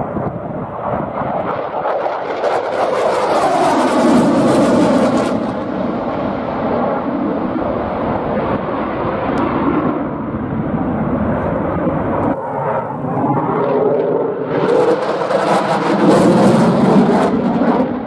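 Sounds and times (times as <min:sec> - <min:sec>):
deep jet rumble: 0:00.0 - 0:18.0
jet roar: 0:00.0 - 0:18.0.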